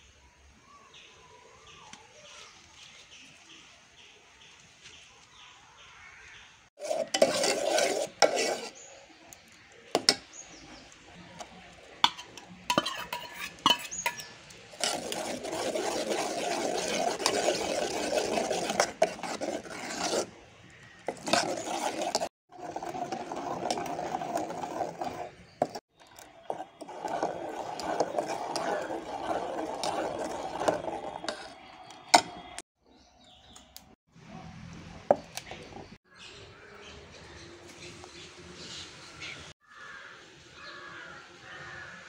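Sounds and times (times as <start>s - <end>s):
ladle scraping a metal pot: 6.8s - 32.6s.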